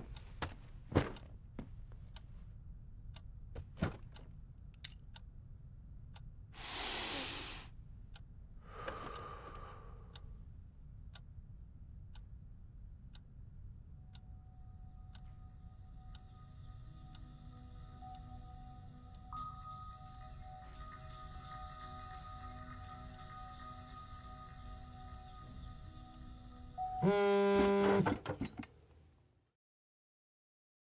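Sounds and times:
clock ticking: 0:08.1 - 0:12.4, 0:13.1 - 0:13.3, 0:13.9 - 0:26.9.

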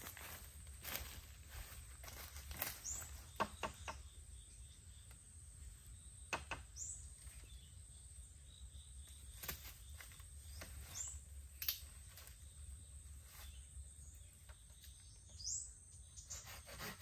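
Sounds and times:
footsteps crackling on dry leaves: 0:00.0 - 0:03.4
dry bamboo stalks knocking: 0:00.0 - 0:04.2, 0:06.3 - 0:07.4, 0:09.1 - 0:12.4
high insect hum: 0:00.0 - 0:17.0.

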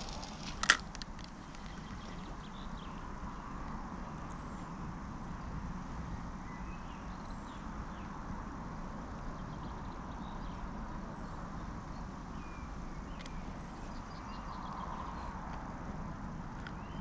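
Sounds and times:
low rumble and hiss: 0:00.0 - 0:17.0
faint bird chirps: 0:01.4 - 0:03.5.

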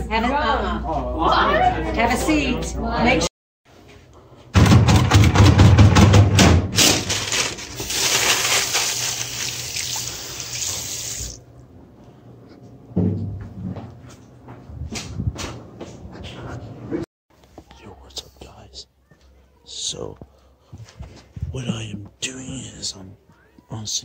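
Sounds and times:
paper towel rustling: 0:06.8 - 0:11.4
sink tap running: 0:07.9 - 0:11.4.

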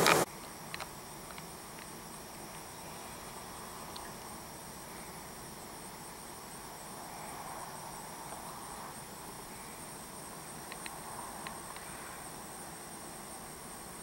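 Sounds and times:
bees buzzing: 0:00.0 - 0:00.3
faint clicks: 0:03.9 - 0:04.1, 0:10.7 - 0:11.9.

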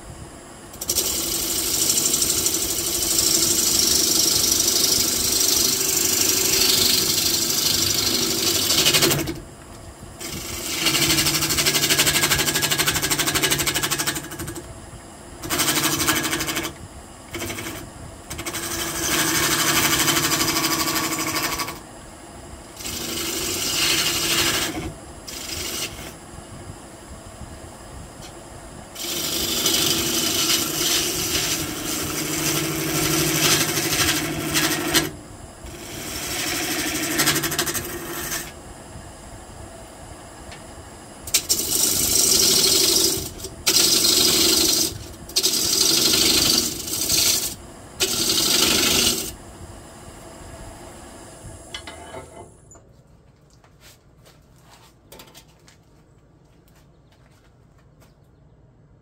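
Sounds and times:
gouge cutting wood on lathe: 0:00.8 - 0:09.4, 0:10.2 - 0:14.4, 0:15.4 - 0:21.8, 0:22.8 - 0:26.2, 0:29.0 - 0:38.6, 0:41.3 - 0:49.4
wood lathe running: 0:00.8 - 0:09.4, 0:10.2 - 0:14.6, 0:15.4 - 0:21.8, 0:22.8 - 0:26.2, 0:29.0 - 0:38.6, 0:41.3 - 0:49.4.

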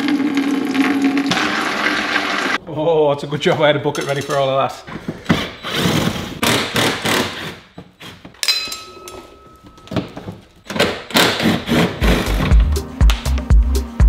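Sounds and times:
tools clunking and scraping: 0:03.3 - 0:06.4, 0:07.2 - 0:12.7
music with heavy beat: 0:12.0 - 0:14.0.

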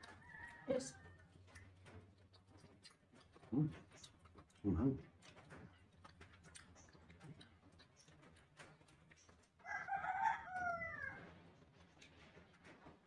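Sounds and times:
rooster crowing: 0:00.0 - 0:01.2, 0:09.6 - 0:11.3.

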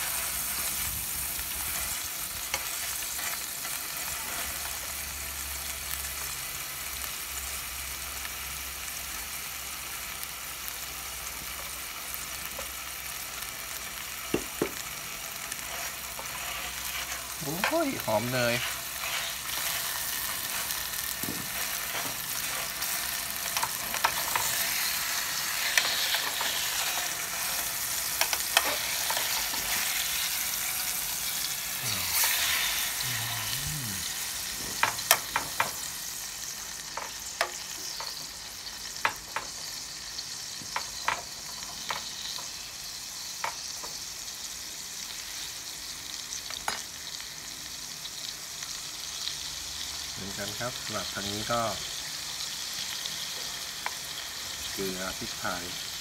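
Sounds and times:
steak sizzling in butter: 0:00.0 - 0:56.0
fork scraping a pan: 0:15.5 - 0:30.4, 0:31.8 - 0:33.0.

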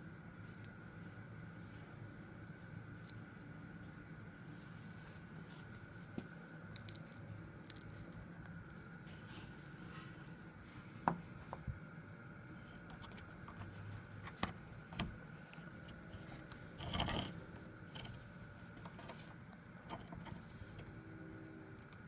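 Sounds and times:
cable seal clicking and scraping: 0:12.7 - 0:21.0.

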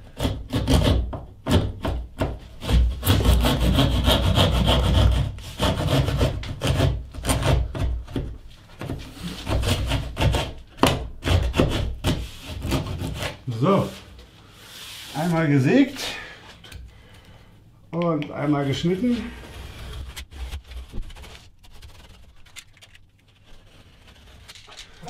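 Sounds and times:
hand saw rasping through plasterboard: 0:00.0 - 0:13.4, 0:23.6 - 0:25.0.

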